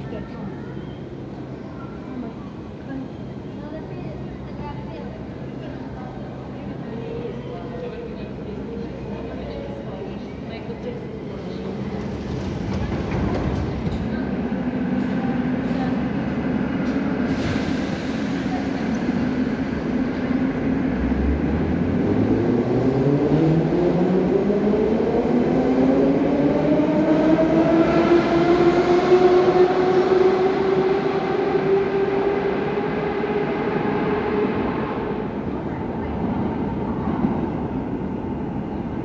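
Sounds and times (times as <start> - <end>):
train wheels rumbling: 10.2 - 39.0.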